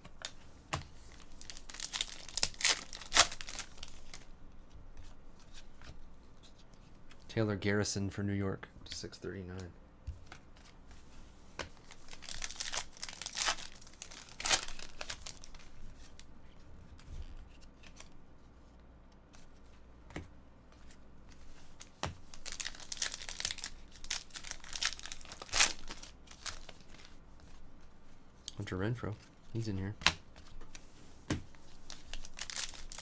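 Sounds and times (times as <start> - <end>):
foil pack crinkling and tearing: 1.1 - 4.2, 11.8 - 15.6, 22.3 - 27.1, 31.8 - 33.0.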